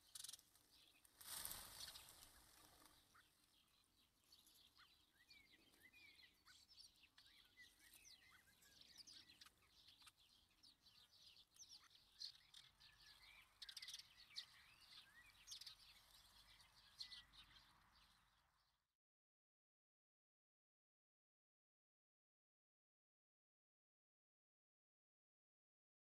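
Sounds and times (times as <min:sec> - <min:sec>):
songbirds chirping: 0:00.0 - 0:19.0.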